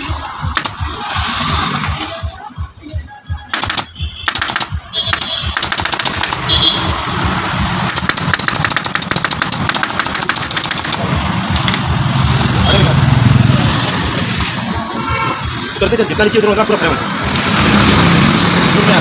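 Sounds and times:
staple gun firing: 0.6 - 0.8, 3.5 - 6.5, 7.9 - 11.9.

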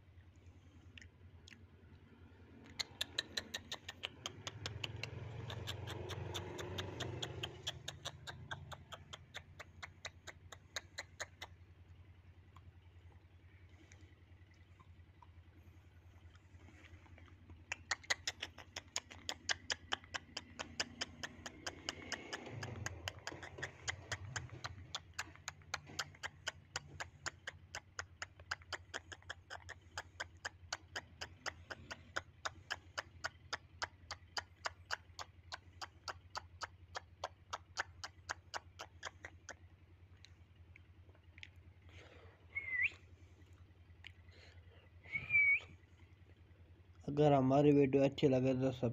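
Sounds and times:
rapid even ticking: 2.7 - 42.3
short rising whistle: 42.5 - 43.0, 45.0 - 45.7.

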